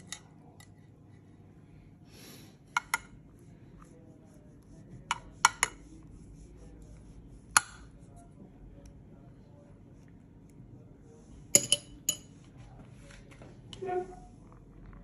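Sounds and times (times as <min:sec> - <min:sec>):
spoon clinking against glass dish: 0:11.6 - 0:12.3.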